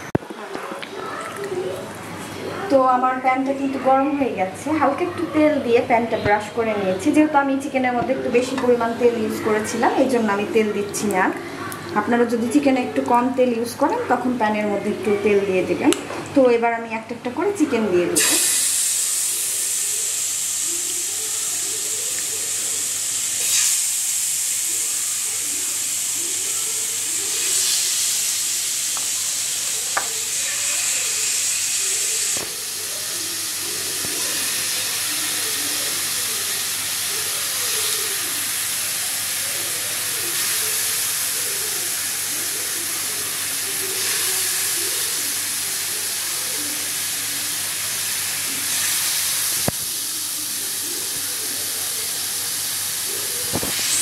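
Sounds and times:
chicken sizzling in a pan: 18.2s - 54.0s.

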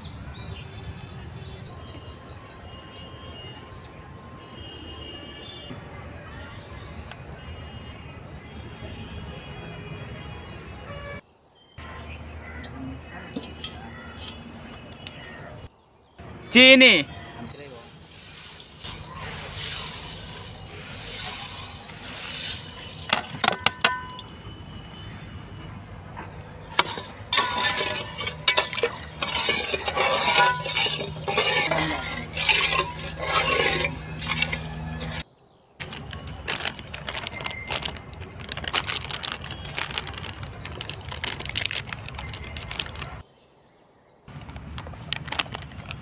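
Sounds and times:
spoon scraping and clinking on pot: 26.7s - 35.2s
scattered clicks and rustling: 35.8s - 43.2s, 44.3s - 46.0s.

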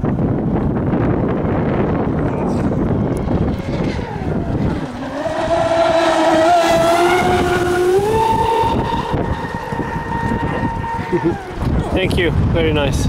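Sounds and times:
electric motor whine: 1.9s - 11.9s.

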